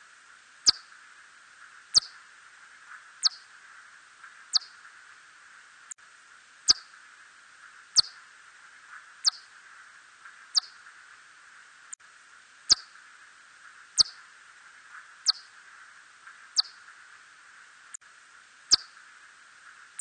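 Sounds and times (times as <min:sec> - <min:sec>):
faint hiss: 0:00.0 - 0:20.0
bat chirps: 0:00.6 - 0:00.9, 0:01.9 - 0:02.2, 0:03.2 - 0:03.4, 0:04.5 - 0:04.8, 0:06.7 - 0:06.9, 0:08.0 - 0:08.2, 0:09.2 - 0:09.5, 0:10.5 - 0:10.8, 0:12.7 - 0:13.0, 0:14.0 - 0:14.2, 0:15.2 - 0:15.5, 0:16.6 - 0:16.8, 0:18.7 - 0:19.0.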